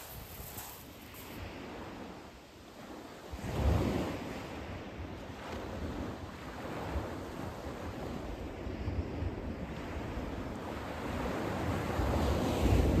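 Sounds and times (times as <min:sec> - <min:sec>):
waves washing over shingle: 0:00.0 - 0:01.8
wind buffeting microphone: 0:00.0 - 0:02.3.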